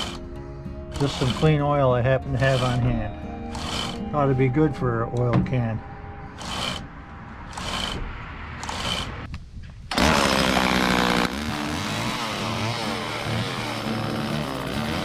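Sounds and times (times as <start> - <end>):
chainsaw cutting branch: 0.0 - 0.2, 0.9 - 1.5, 7.5 - 8.0, 8.6 - 9.2, 9.9 - 15.0.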